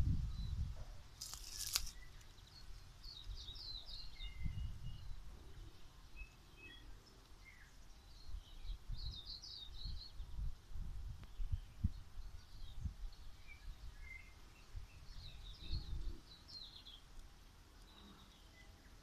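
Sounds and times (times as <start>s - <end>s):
small birds twittering: 0.2s - 19.0s
whistled bird notes: 1.5s - 5.2s.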